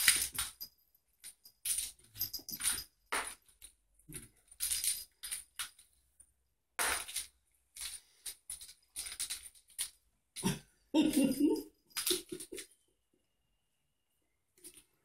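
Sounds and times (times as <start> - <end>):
small bell jingling: 0.0 - 3.3, 11.0 - 12.7.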